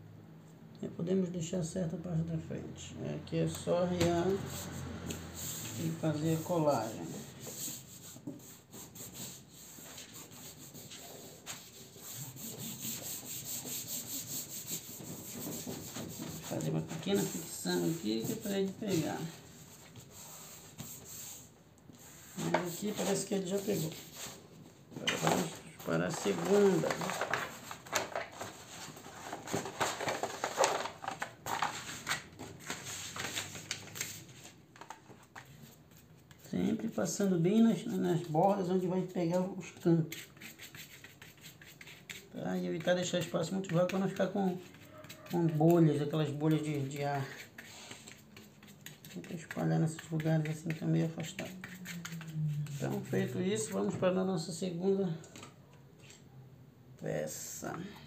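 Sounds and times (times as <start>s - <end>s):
hand rubbing over cardboard: 4.2s - 27.5s, 43.7s - 53.9s.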